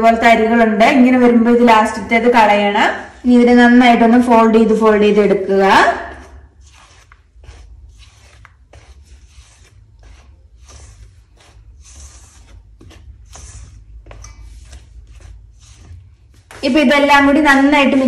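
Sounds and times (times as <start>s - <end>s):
spatula scraping metal bowl: 5.2s - 18.0s.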